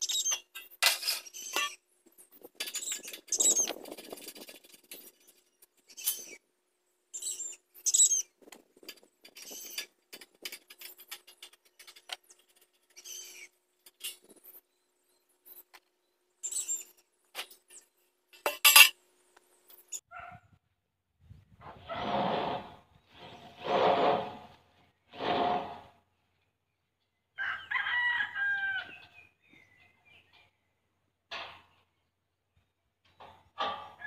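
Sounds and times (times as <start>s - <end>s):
hand tools clicking and scraping metal: 0.0s - 6.4s, 7.2s - 14.6s, 15.4s - 19.0s
rooster crowing: 27.4s - 29.1s.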